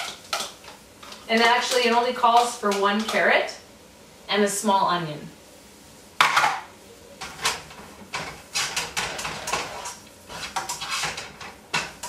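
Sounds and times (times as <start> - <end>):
vegetables sauteing: 0.0 - 12.0
spatula scraping frying pan: 7.2 - 12.0.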